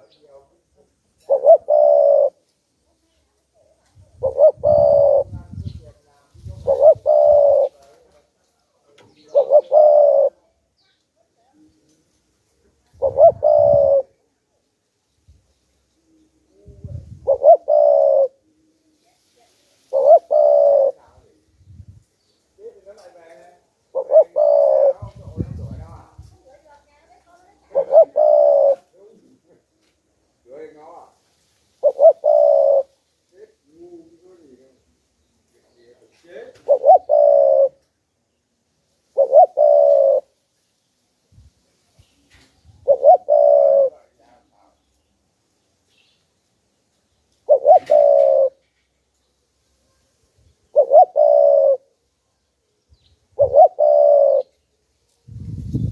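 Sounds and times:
dove cooing: 1.2 - 2.4, 3.6 - 5.8, 6.4 - 8.0, 9.0 - 10.4, 13.0 - 14.2, 16.1 - 18.7, 19.9 - 21.4, 23.9 - 26.2, 27.6 - 29.4, 31.8 - 32.9, 36.6 - 37.9, 39.2 - 40.4, 42.6 - 44.2, 47.4 - 48.6, 50.6 - 51.9, 53.3 - 54.6.

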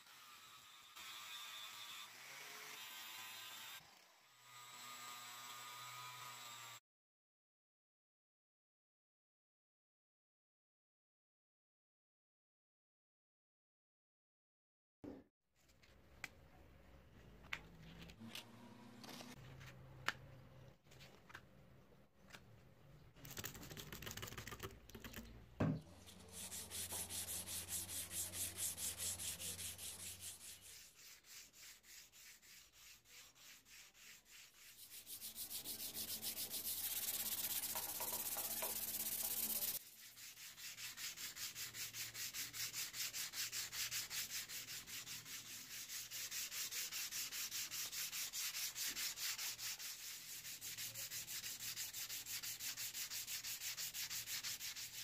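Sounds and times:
sandpaper rubbing on metal: 26.0 - 55.0.

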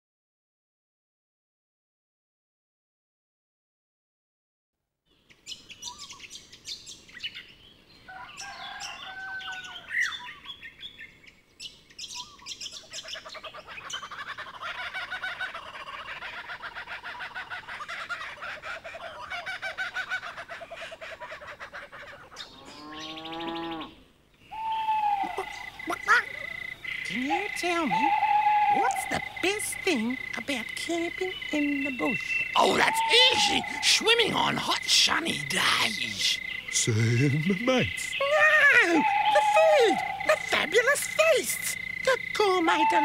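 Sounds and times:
birds chirping and twittering: 5.1 - 43.0
fast trilling bird chorus: 24.5 - 43.0.

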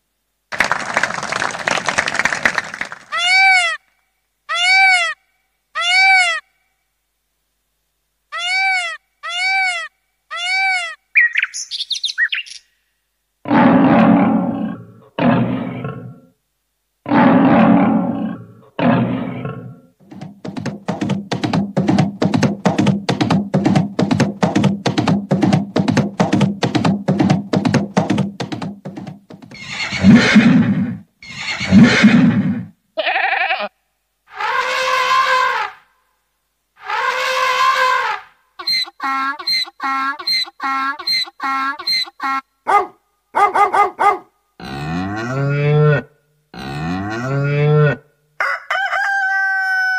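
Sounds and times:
animal-like calls and roars: 13.4 - 16.3, 17.0 - 19.9, 29.6 - 32.7
keyboard chirps: 38.6 - 42.2.

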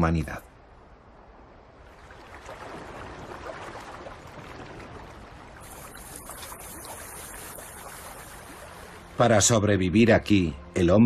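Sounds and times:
water sloshing among ice: 1.9 - 9.2
thin high hiss: 5.6 - 9.0.

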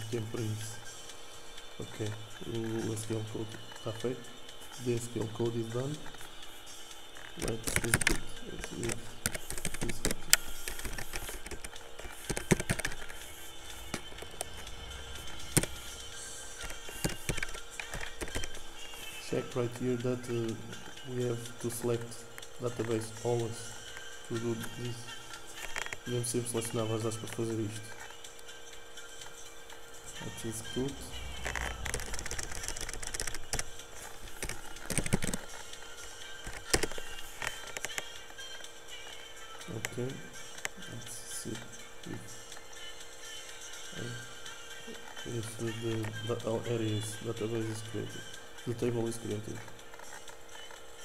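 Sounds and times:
faint background music: 0.0 - 51.0
keyboard and mouse clicks: 7.4 - 14.7, 15.4 - 16.0, 16.6 - 18.6, 31.4 - 35.6, 36.4 - 38.1
keyboard keystrokes: 8.9 - 13.2, 31.5 - 33.7, 34.4 - 35.5.

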